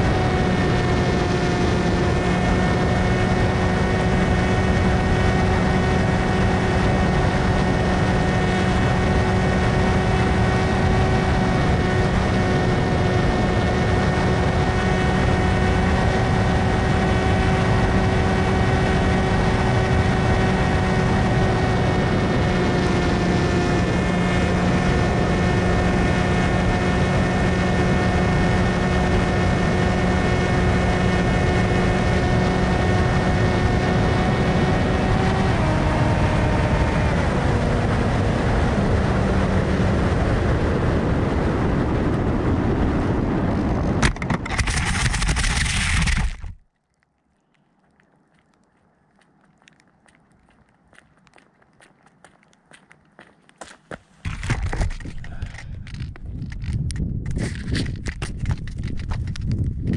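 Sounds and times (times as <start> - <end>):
electric motor whine: 0.0 - 38.3, 44.1 - 46.6
rushing air: 54.2 - 58.0.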